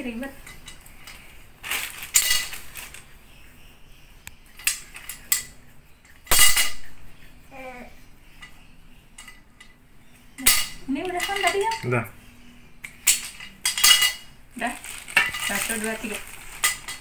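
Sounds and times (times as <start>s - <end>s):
plastic wrapping rustling: 0.9s - 3.1s, 14.0s - 17.0s.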